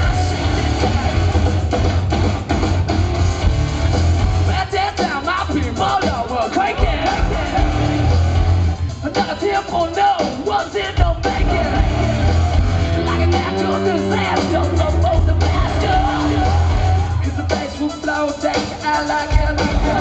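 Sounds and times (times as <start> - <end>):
yelled sung vocals: 0.0 - 2.0, 4.4 - 20.0
electric guitar: 0.0 - 4.6, 11.1 - 17.4
drums: 0.0 - 20.0
live rock band: 0.0 - 20.0.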